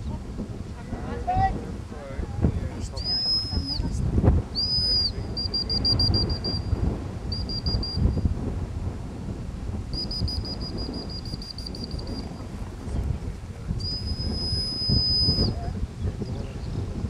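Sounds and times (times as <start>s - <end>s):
wind buffeting microphone: 0.0s - 17.0s
dog whistle blasts and pips: 3.0s - 8.3s, 9.9s - 12.3s, 13.8s - 15.6s.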